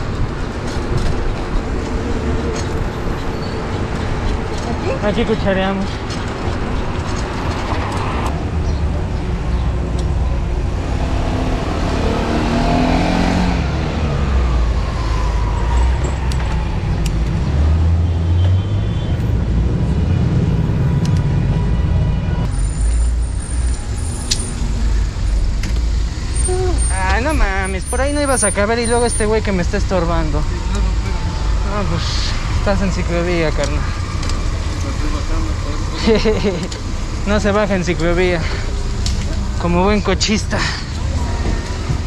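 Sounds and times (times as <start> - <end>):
vehicle engines passing: 0.0 - 42.0
engine revving: 10.6 - 22.2.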